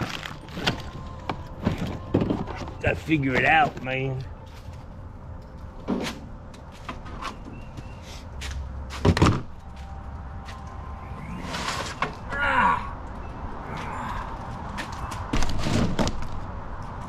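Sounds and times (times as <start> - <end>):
plastic bins clattering: 0.0 - 4.2
knocks and scrapes: 11.3 - 12.3.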